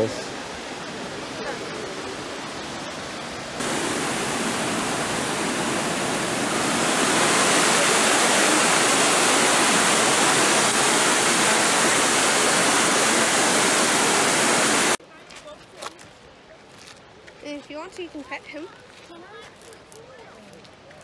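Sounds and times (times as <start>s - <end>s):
waterfall rushing: 0.0s - 15.0s.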